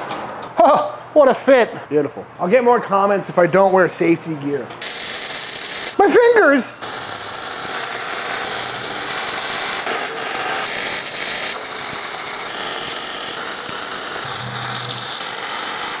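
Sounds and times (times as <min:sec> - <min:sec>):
welding arc crackling hiss: 0:04.8 - 0:16.0.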